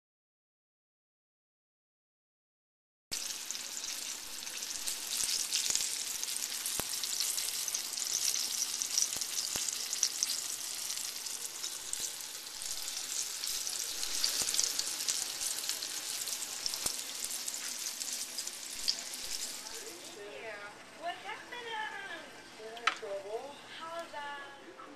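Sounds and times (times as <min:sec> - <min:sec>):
steak sizzling in oil: 0:03.1 - 0:20.3.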